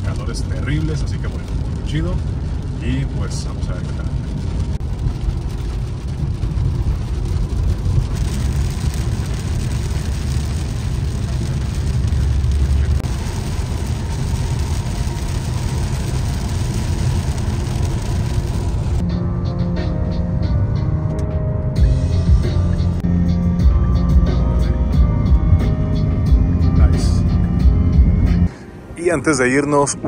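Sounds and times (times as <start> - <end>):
car cabin road rumble: 0.0 - 19.0
tyre hiss on wet road: 5.2 - 19.0
music: 13.7 - 29.9.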